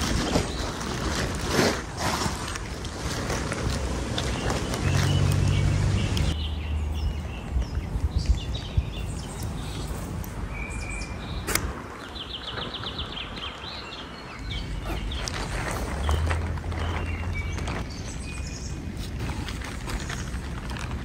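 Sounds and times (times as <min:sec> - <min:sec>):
plastic tarp flapping: 0:00.0 - 0:06.1, 0:14.6 - 0:21.0
songbirds chirping: 0:02.2 - 0:21.0
wind buffeting microphone: 0:07.0 - 0:10.5.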